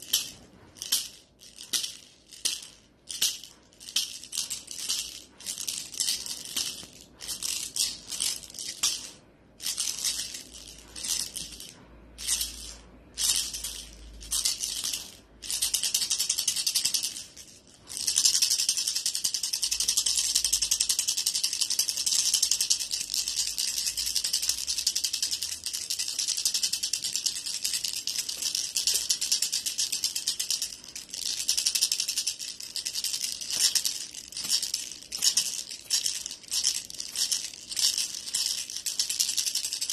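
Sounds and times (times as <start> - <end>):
cat toy rattling: 0.0 - 39.9.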